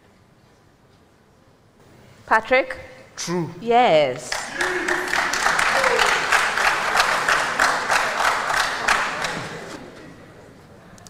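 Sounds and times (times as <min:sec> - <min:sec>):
audience clapping in rhythm: 0:04.2 - 0:09.8.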